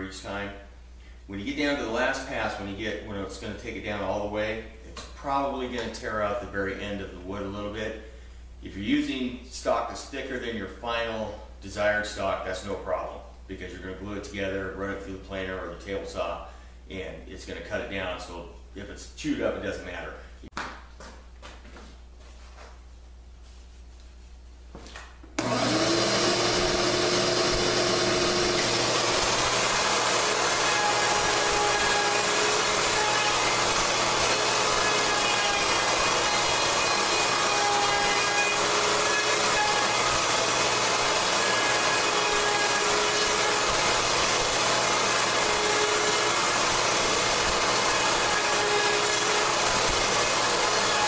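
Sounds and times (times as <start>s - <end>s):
electric router whining and running: 25.4s - 51.0s.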